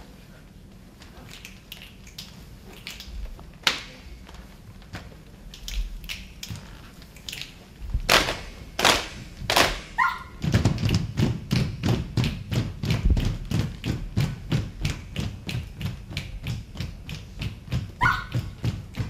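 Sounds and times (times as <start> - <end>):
hand claps: 10.7 - 18.1.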